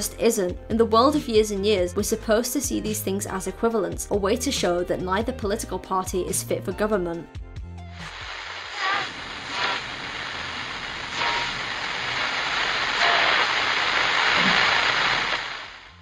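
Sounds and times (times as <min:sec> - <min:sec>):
white noise static hiss: 0:08.0 - 0:16.0.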